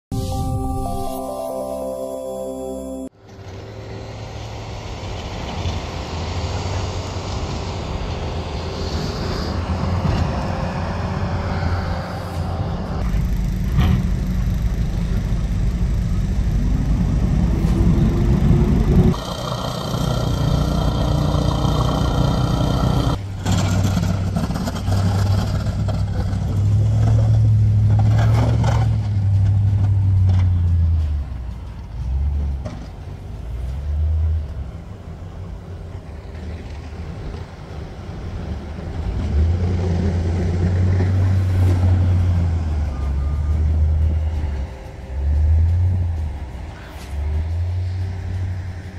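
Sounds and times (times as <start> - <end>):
truck engines running: 3.2 - 48.9
engine revving up: 16.0 - 30.5.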